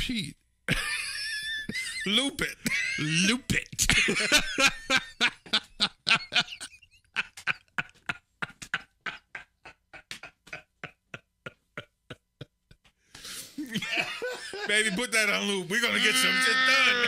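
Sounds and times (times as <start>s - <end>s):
men laughing hard: 0.7s - 12.8s, 13.6s - 17.0s.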